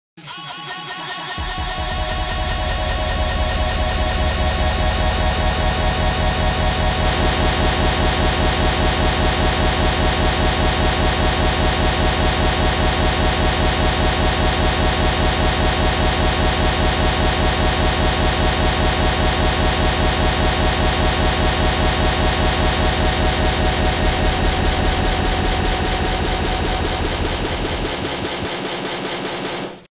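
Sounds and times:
harsh distorted pulsing buzz: 1.4 - 29.1.

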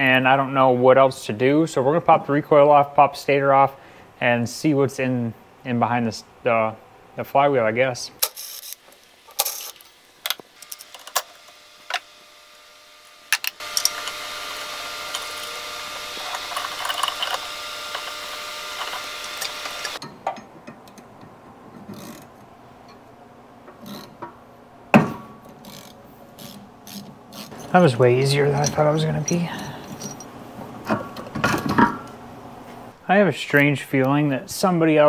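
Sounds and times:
power tool running: 10.5 - 20.0
ratchet clicking: 13.3 - 15.6, 16.2 - 20.0, 25.6 - 27.6.

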